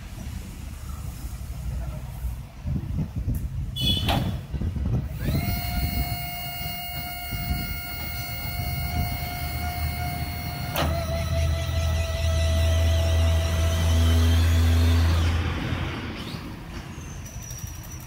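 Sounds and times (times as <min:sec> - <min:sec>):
hydraulic pump motor whine: 0:04.9 - 0:16.4.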